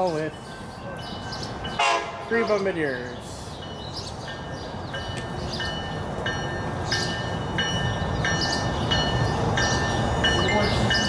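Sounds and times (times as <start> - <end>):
train rumbling: 0.0 - 11.0
warning bell ringing: 4.4 - 11.0.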